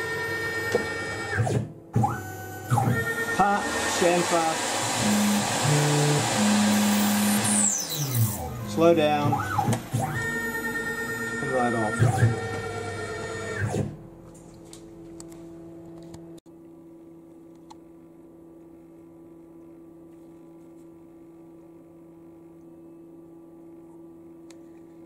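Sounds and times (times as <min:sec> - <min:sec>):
workshop machinery humming: 0:00.0 - 0:16.4.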